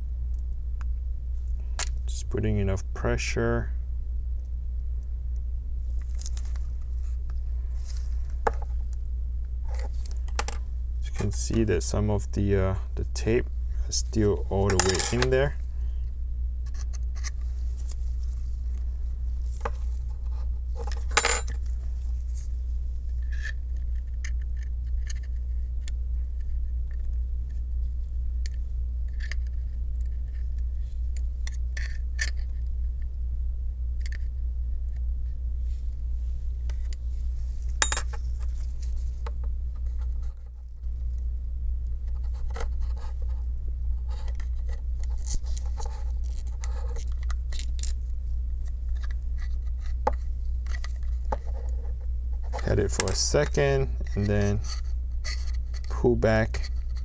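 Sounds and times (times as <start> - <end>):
steady low hum: 0.0 - 57.0.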